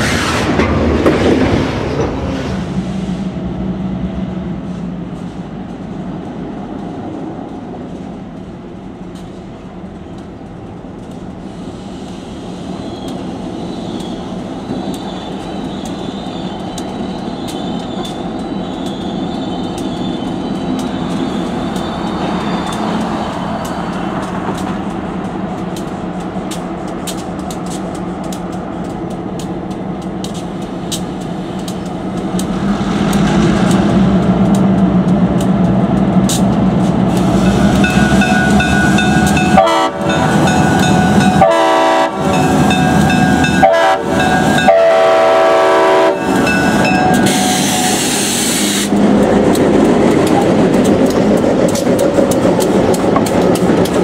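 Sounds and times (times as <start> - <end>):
diesel locomotives rumbling: 0.0 - 54.0
train horn blasts: 37.5 - 48.0.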